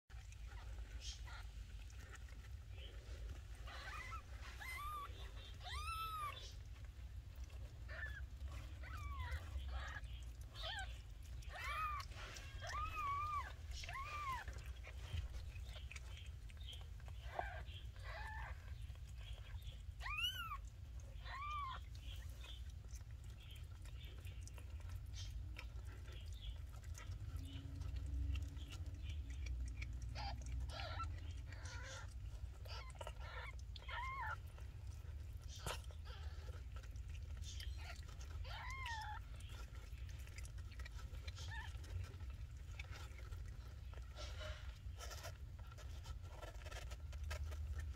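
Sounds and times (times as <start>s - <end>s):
cat licking kittens: 0.1s - 47.9s
kittens mewing: 0.4s - 47.9s.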